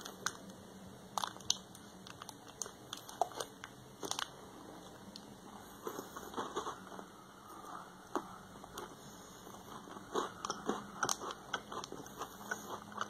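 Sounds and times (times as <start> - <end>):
wrapper crackling: 1.1 - 5.0
crunchy chewing: 1.1 - 13.0.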